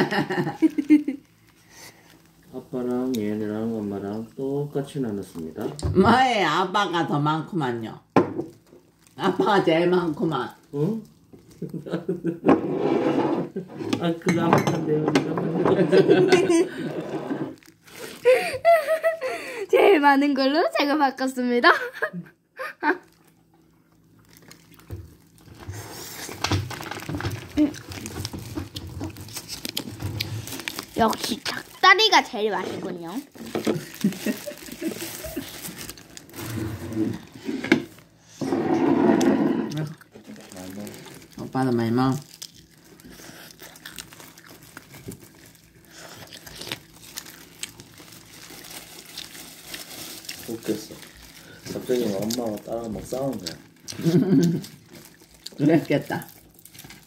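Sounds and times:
plastic glove rustling: 0.2s - 5.8s, 16.1s - 19.1s, 24.0s - 38.2s, 40.2s - 57.0s.

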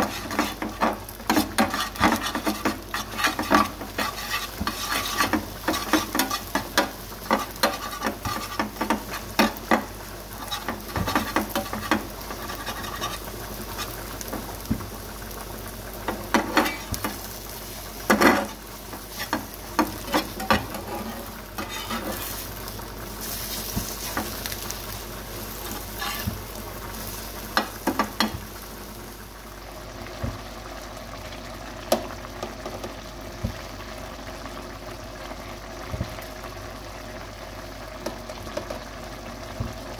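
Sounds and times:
spatula scraping a pan: 0.0s - 14.1s, 16.1s - 22.6s, 23.2s - 24.6s, 25.4s - 28.4s
food sizzling: 0.0s - 39.9s.

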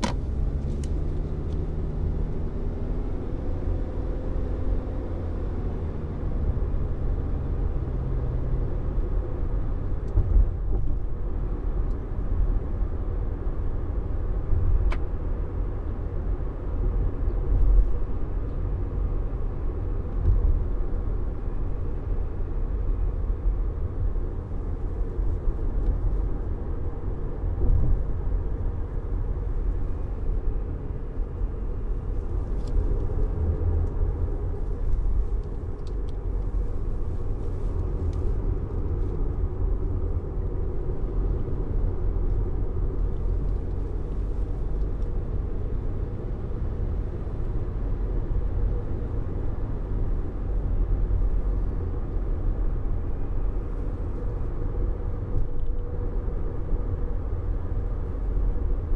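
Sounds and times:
tyre and road rumble: 0.0s - 7.9s.

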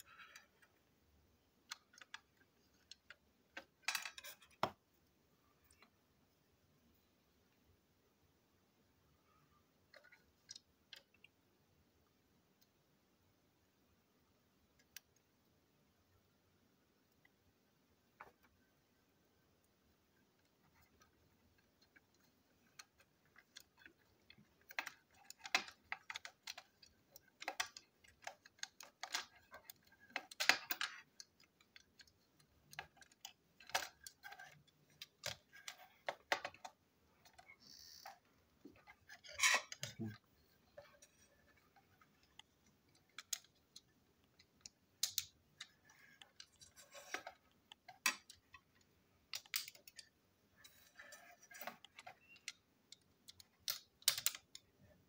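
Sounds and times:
plastic parts clicking: 0.0s - 4.8s, 20.3s - 55.0s.

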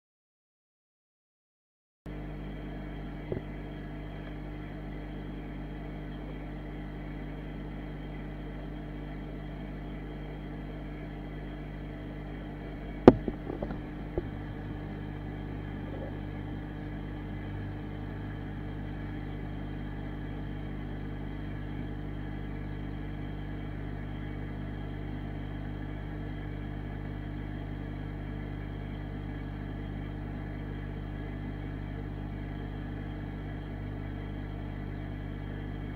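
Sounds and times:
aquarium filter humming: 2.1s - 35.9s
sharp knock: 13.1s - 14.3s.

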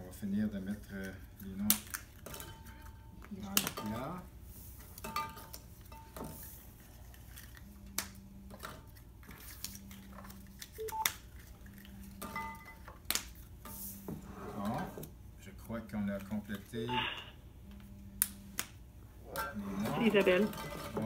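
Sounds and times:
low electronic tones: 16.9s - 17.4s.

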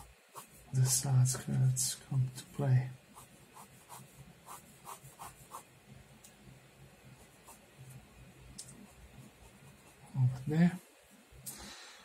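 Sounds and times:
pen scratching on paper: 0.0s - 1.0s, 3.1s - 5.7s, 7.2s - 7.6s.

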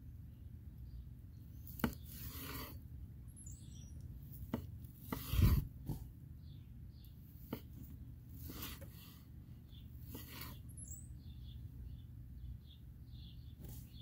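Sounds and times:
knife sawing through steak: 1.8s - 2.8s, 4.9s - 5.7s, 8.4s - 9.2s.

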